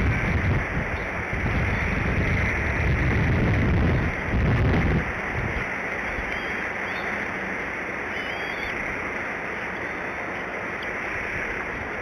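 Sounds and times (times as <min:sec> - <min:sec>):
wind noise on microphone: 0:00.0 - 0:07.7
faint bird chirps: 0:06.0 - 0:07.2, 0:08.1 - 0:08.9.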